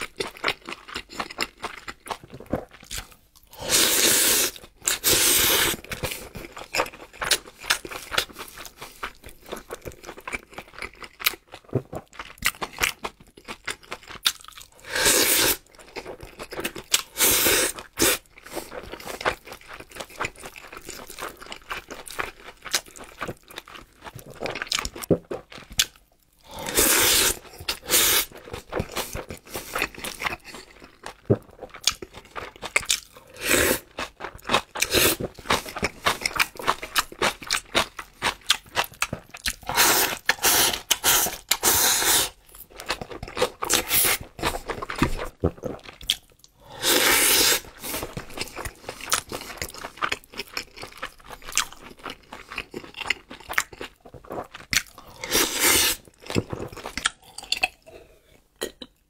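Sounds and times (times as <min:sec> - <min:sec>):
man chewing food: 0:00.0 - 0:59.0.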